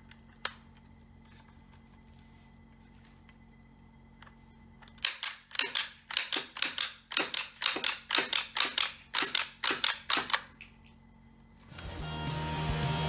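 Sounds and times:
toy gun plastic clicks: 4.9s - 10.8s.

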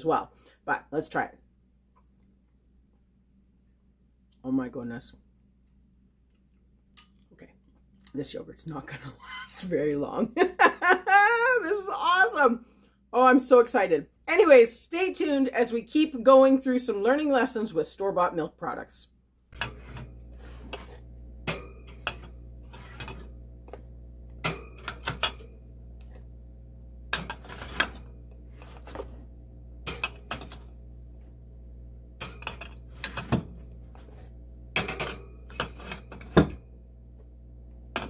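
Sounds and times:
steady low hum: 19.4s - 38.0s.

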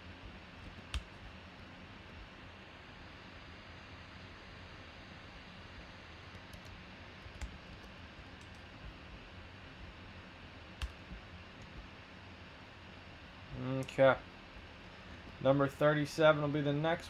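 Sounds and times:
computer mouse and keyboard clicks: 0.6s - 1.3s, 6.3s - 9.0s, 10.8s - 11.9s.

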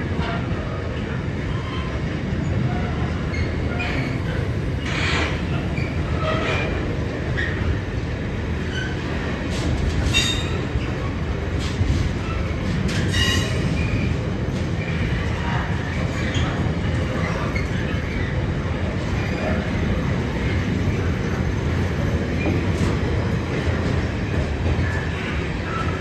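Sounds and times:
train wheels rumbling on rails: 0.0s - 26.0s.

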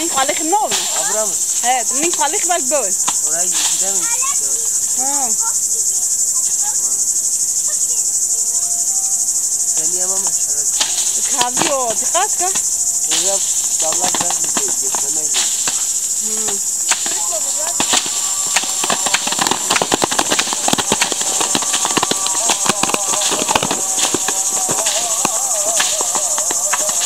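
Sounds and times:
cicadas buzzing: 0.0s - 27.0s
faint rising and falling calls: 0.0s - 27.0s
sharp knocks: 10.8s - 27.0s.

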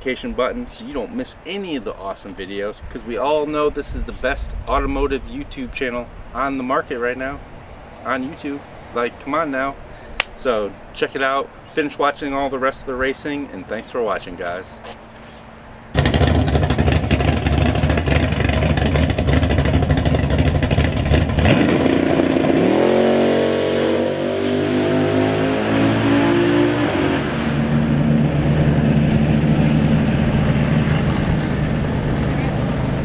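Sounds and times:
loud rough engine running: 15.9s - 23.0s, 27.6s - 33.0s
car engine revving up: 15.9s - 33.0s.

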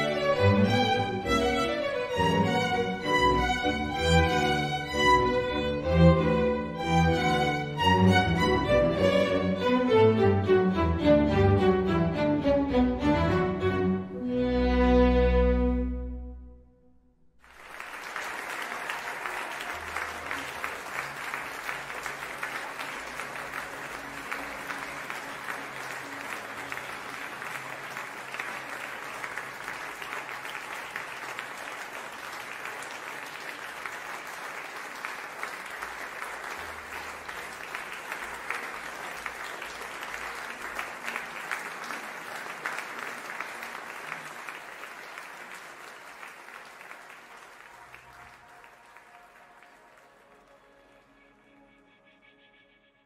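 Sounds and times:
applause: 0.0s - 8.4s, 17.4s - 51.2s.

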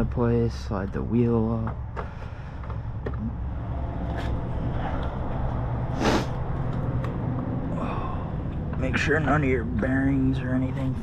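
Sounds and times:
steady low rumble: 0.0s - 11.0s
short scraping rush: 3.7s - 6.6s.

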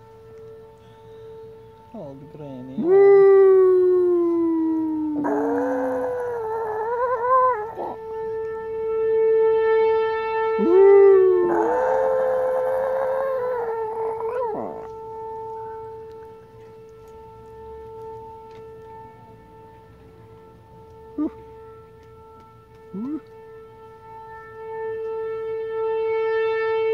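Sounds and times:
steady siren tone: 0.0s - 26.9s
dog howling: 2.8s - 8.1s, 10.6s - 15.4s.

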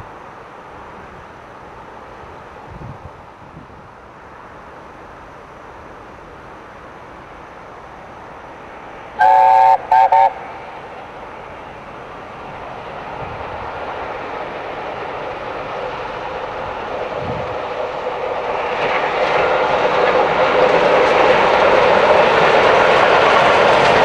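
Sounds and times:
train rumble: 0.0s - 24.0s
steam locomotive chime whistle: 9.2s - 10.7s.

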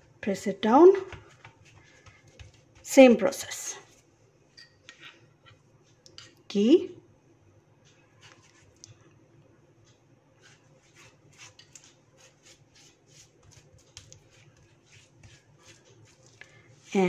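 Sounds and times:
hand smearing ghee on dough: 0.0s - 4.2s, 7.6s - 17.0s.

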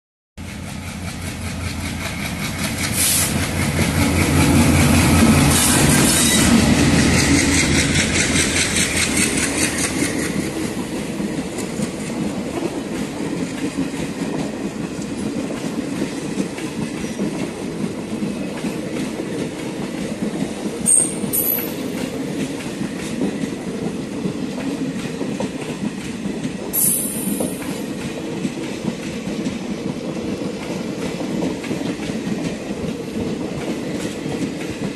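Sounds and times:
train passing at high speed: 0.4s - 34.9s
wheels clacking over rail joints: 0.4s - 34.9s
high-pitched wheel squeals: 5.5s - 6.7s.

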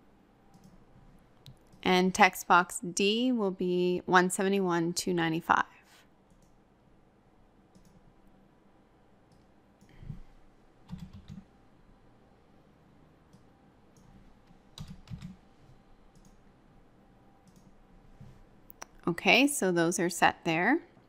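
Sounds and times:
computer mouse clicks: 0.5s - 0.8s, 6.3s - 6.6s, 7.7s - 8.0s, 9.3s - 10.2s, 13.3s - 15.4s, 16.1s - 16.4s, 17.4s - 19.0s
keyboard keystrokes: 10.9s - 11.4s, 14.8s - 15.4s.

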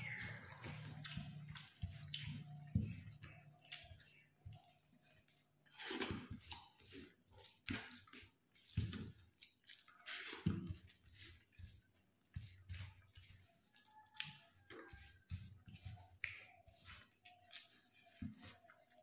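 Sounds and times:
eating sounds: 0.0s - 5.0s
fingers squishing rice: 0.0s - 19.0s.

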